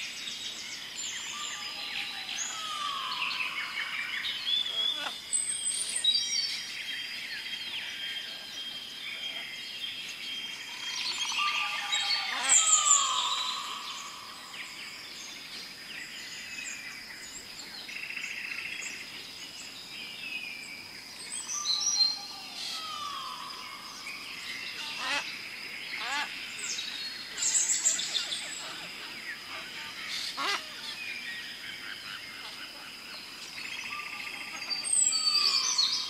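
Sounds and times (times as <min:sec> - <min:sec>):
bird chirps and calls: 0:01.1 - 0:06.7, 0:10.4 - 0:14.8, 0:21.2 - 0:36.0.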